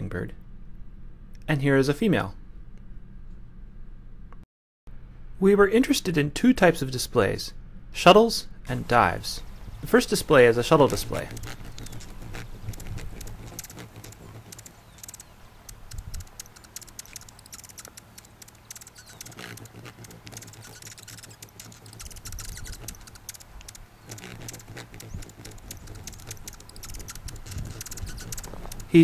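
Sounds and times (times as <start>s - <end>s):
hummingbird rapid high ticks: 8.6s - 29.0s.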